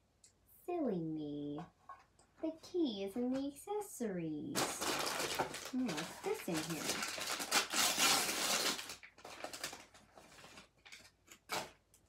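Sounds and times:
plastic packaging crinkling: 0:04.6 - 0:12.0.

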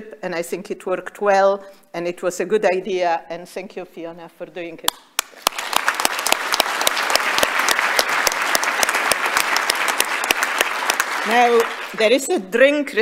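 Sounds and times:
audience applauding: 0:05.2 - 0:12.3.

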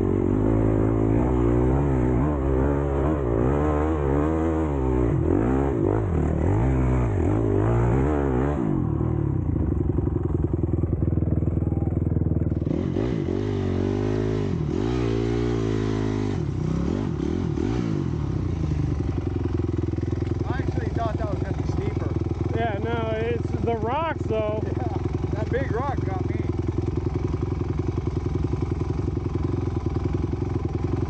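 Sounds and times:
dirt bike engine revving and idling: 0:00.0 - 0:31.0.

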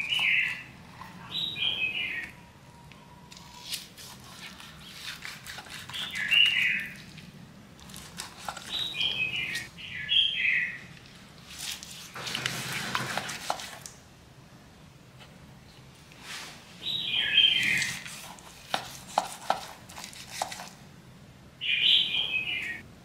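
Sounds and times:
bird chirping: 0:00.0 - 0:03.6, 0:05.8 - 0:07.0, 0:08.6 - 0:10.9, 0:16.8 - 0:18.0, 0:21.6 - 0:22.9
knife slicing raw chicken: 0:03.6 - 0:06.8, 0:17.6 - 0:20.7.

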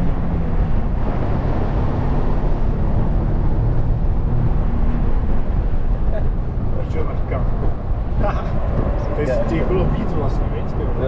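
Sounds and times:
road noise: 0:00.0 - 0:11.0
wind rush: 0:00.0 - 0:11.0.

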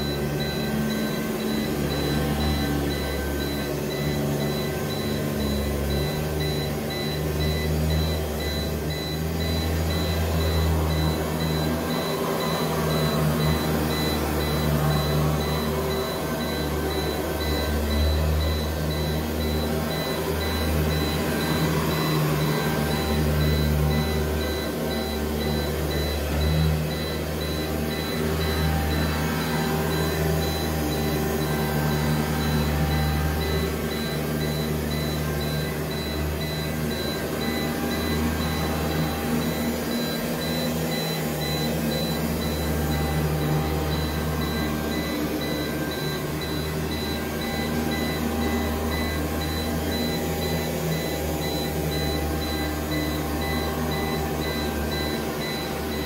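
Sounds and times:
vacuum cleaner running on carpet: 0:00.0 - 0:10.8
short high alarm beeps: 0:00.0 - 0:56.0.

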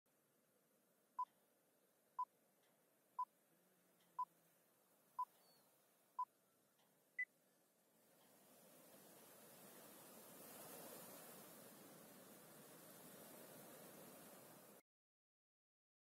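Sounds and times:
faint hiss: 0:02.7 - 0:14.8.

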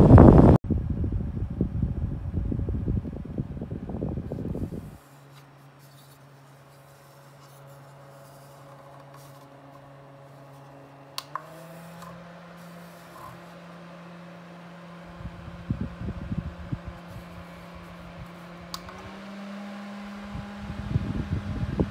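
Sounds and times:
low rumbling: 0:00.0 - 0:05.0, 0:12.0 - 0:21.9
desk fan motor hum: 0:00.0 - 0:21.9
fan speed button click: 0:11.1 - 0:13.8, 0:16.8 - 0:19.5.

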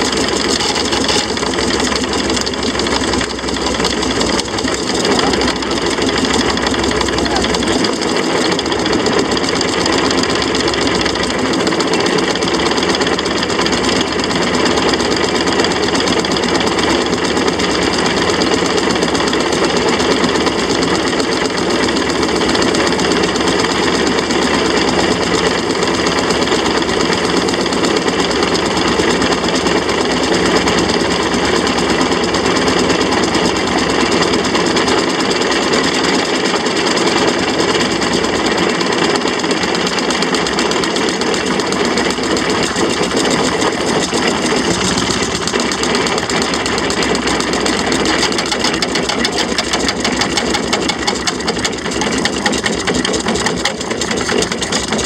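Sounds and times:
steam traction engine running: 0:00.0 - 0:55.0.

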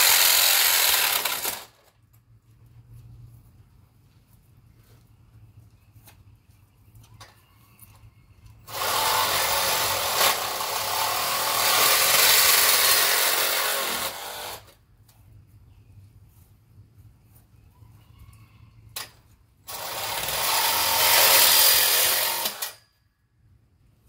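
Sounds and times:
cordless power tool on metal tube: 0:00.0 - 0:01.8, 0:08.7 - 0:14.8, 0:19.7 - 0:22.8.

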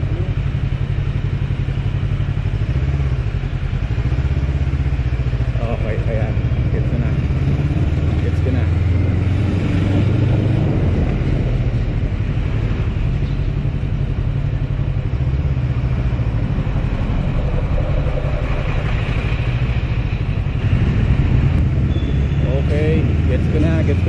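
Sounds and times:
motorcycle engine running: 0:00.0 - 0:24.0
wind and road noise: 0:00.0 - 0:24.0.

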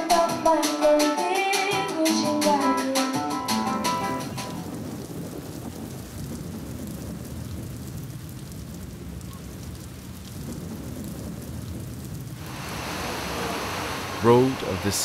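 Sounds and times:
low rumbling noise: 0:04.4 - 0:15.0
faint hiss: 0:12.4 - 0:15.0.

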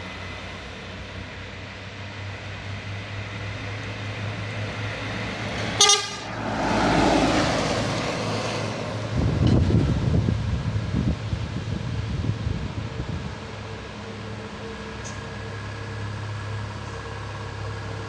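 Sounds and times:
truck diesel engine passing: 0:00.0 - 0:18.0
truck horn toot: 0:05.7 - 0:06.5
wind buffeting microphone: 0:07.2 - 0:13.7.

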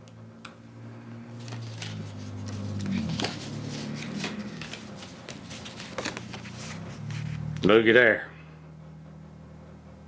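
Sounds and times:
paper card rustling: 0:01.4 - 0:07.5.

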